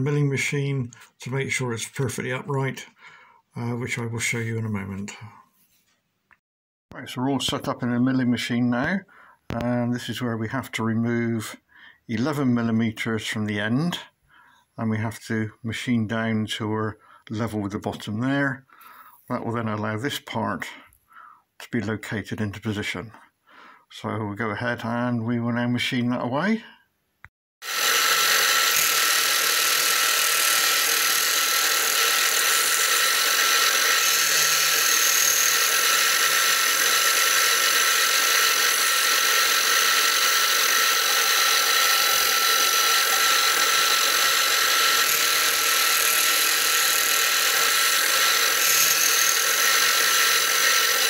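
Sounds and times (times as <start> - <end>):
milling machine whining: 27.6 - 51.0.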